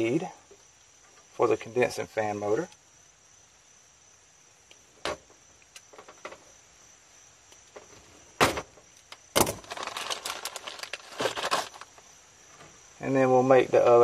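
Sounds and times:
wires rustling: 7.5 - 12.8.

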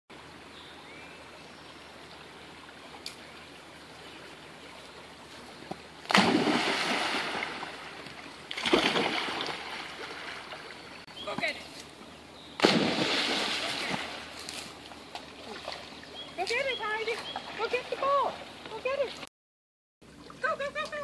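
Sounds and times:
dog splashing into water: 6.1 - 10.7, 12.6 - 14.3.

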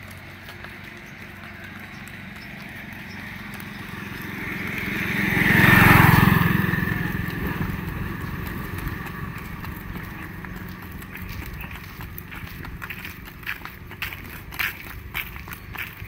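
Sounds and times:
vehicle driving past: 0.0 - 16.0.

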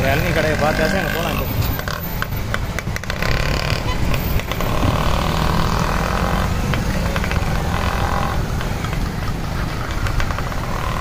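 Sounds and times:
traffic rumble: 0.0 - 11.0
vehicle engines passing: 0.0 - 11.0.

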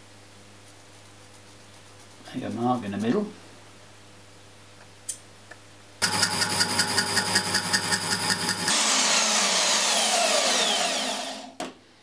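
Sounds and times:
band saw cutting metal: 6.0 - 11.6
power tool pulsing whir: 6.0 - 11.6.

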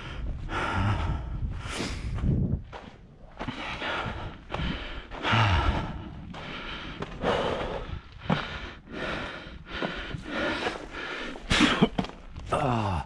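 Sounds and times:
person breathing hard: 0.0 - 2.3, 3.4 - 11.6
person grunting: 12.5 - 13.0.

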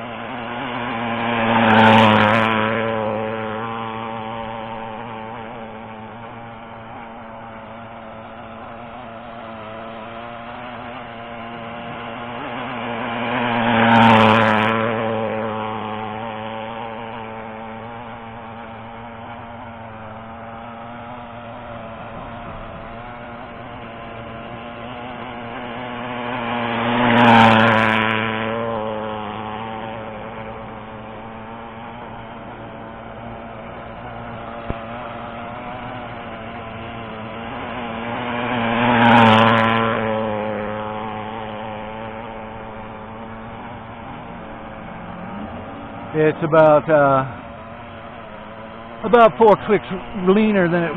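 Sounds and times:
model boat engine passing: 0.0 - 50.9.

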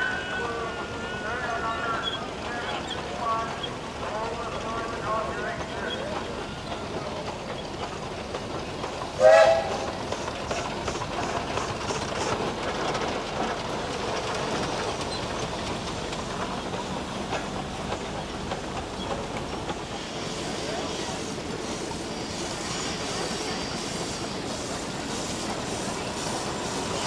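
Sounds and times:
steam engine running: 0.0 - 27.0
steam exhaust chuffs: 5.9 - 27.0
steam whistle toot: 9.2 - 9.9.

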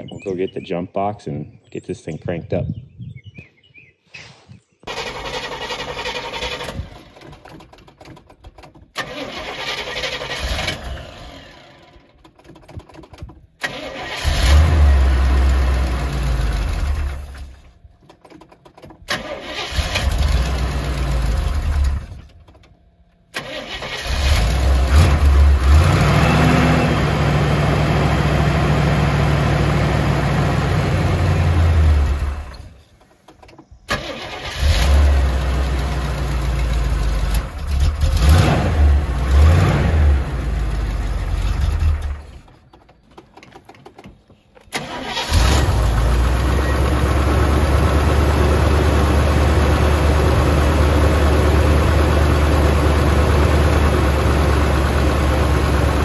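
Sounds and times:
car engine cranking and starting: 4.9 - 56.0.

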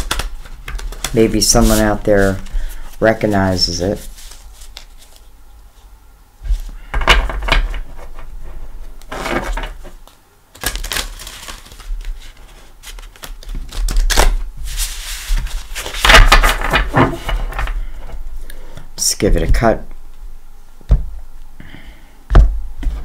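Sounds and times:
cards being shuffled by hand: 0.0 - 5.3, 6.4 - 18.2.

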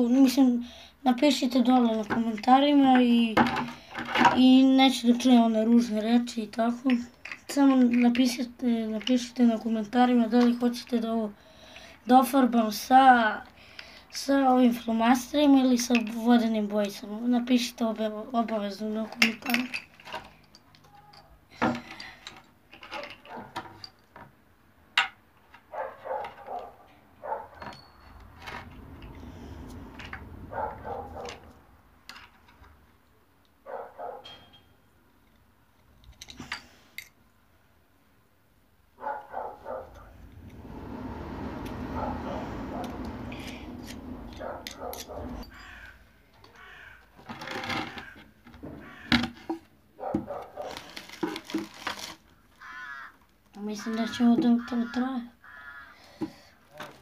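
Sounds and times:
dog barking: 23.2 - 23.6, 25.7 - 27.6, 30.5 - 31.4, 33.6 - 34.3, 39.0 - 40.1, 44.4 - 45.4, 50.0 - 50.8
harsh bird calls: 44.4 - 47.0, 48.0 - 49.2, 52.6 - 53.2, 53.8 - 56.1.

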